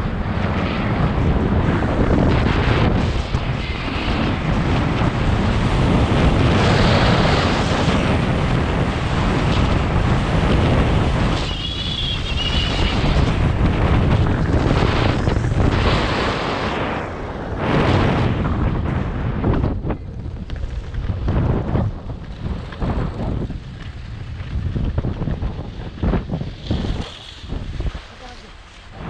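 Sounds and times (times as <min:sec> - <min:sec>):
wind on microphone: 0:00.0 - 0:29.0
skis sliding on packed snow: 0:20.2 - 0:29.0.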